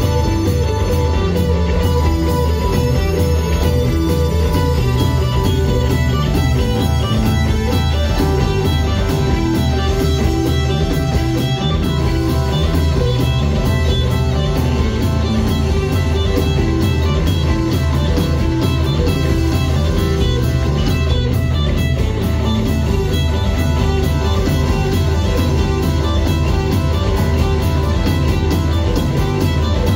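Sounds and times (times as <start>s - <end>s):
bass guitar: 0.0s - 29.9s
drums: 0.0s - 29.9s
electric guitar: 0.0s - 29.9s
keyboards: 0.0s - 29.9s.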